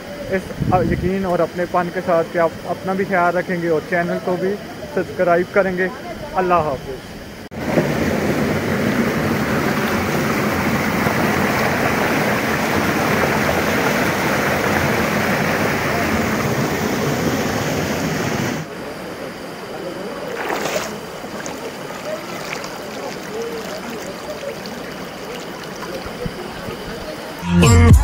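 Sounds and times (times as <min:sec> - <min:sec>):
shallow stream flowing over stones: 0:07.6 - 0:17.6, 0:18.6 - 0:27.4
waterfall splashing over boulders: 0:07.6 - 0:27.4.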